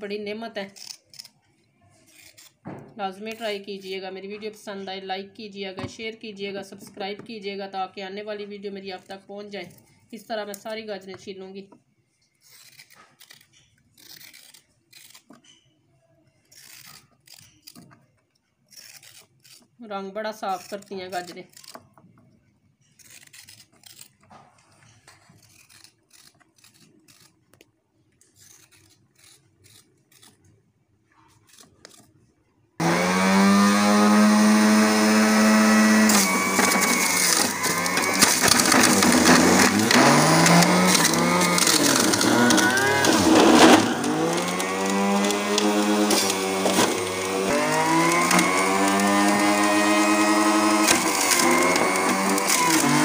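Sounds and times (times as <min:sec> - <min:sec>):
vegetable peeler scraping carrots: 0:00.6 - 0:04.0, 0:12.2 - 0:15.7, 0:16.4 - 0:18.1, 0:18.7 - 0:22.0, 0:22.8 - 0:30.5, 0:31.2 - 0:32.2, 0:32.8 - 0:53.0
electric juicer motor running: 0:32.8 - 0:53.0.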